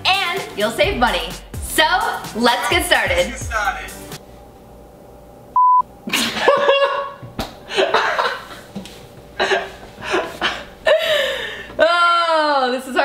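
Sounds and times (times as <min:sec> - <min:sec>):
people laughing: 0:06.1 - 0:08.6.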